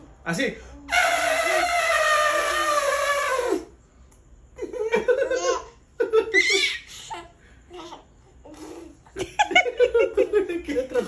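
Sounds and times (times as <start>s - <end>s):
baby giggling: 5.0s - 10.2s.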